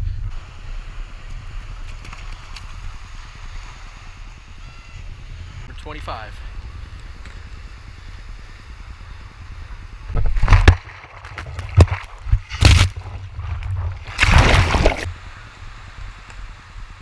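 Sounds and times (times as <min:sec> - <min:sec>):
wind rumble on microphone: 0:00.0 - 0:17.0
water sloshing and splashing: 0:10.2 - 0:15.2.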